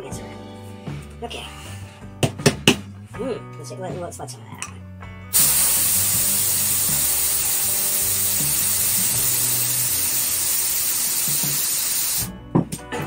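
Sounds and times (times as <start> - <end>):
air hissing from tire valve: 5.3 - 12.3.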